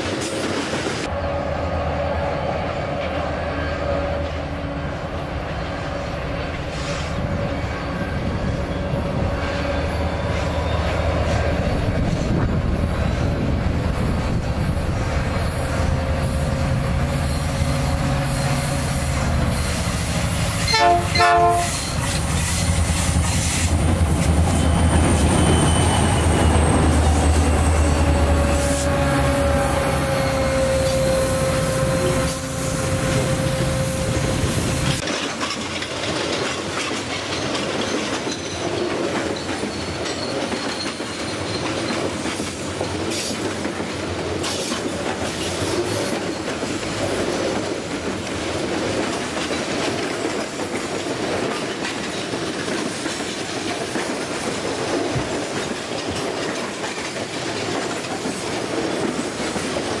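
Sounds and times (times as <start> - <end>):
locomotive whine: 1.0 - 35.0
locomotive engine rumble: 23.7 - 35.0
wagon wheels clattering on rails: 35.0 - 60.0.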